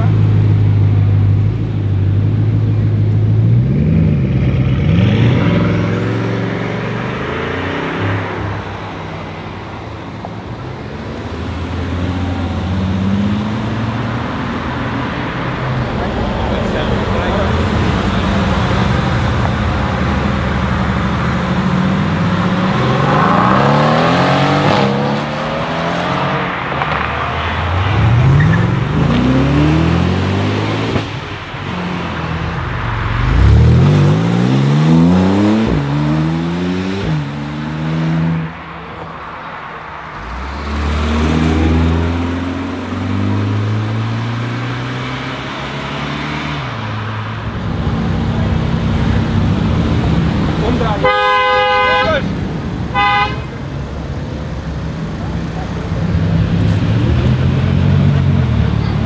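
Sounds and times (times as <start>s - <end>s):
sports cars accelerating hard: 2.4s - 9.8s, 10.5s - 39.1s, 40.0s - 53.3s
engines revving through gears: 3.4s - 8.4s, 16.1s - 32.5s, 33.2s - 38.5s, 40.2s - 51.1s, 55.6s - 59.0s.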